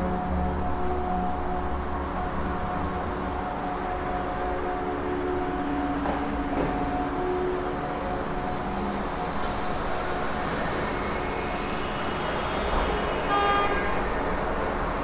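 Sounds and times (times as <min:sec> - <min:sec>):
traffic noise: 0:00.0 - 0:15.0
car horn toot: 0:13.3 - 0:13.8.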